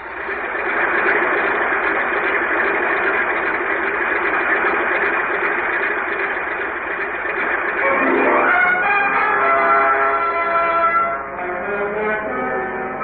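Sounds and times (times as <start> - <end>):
propeller plane engine drone: 0.0 - 13.0.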